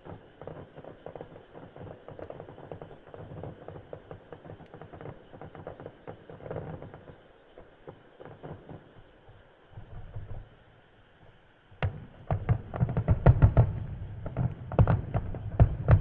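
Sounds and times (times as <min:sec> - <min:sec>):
fireworks crackling: 0:00.0 - 0:16.0
low rumbling booms: 0:11.9 - 0:16.0.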